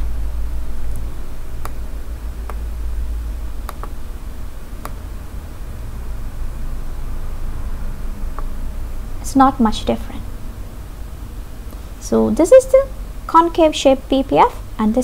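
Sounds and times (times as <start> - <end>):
low electrical hum: 0.0 - 15.0
computer mouse clicks: 3.7 - 4.0.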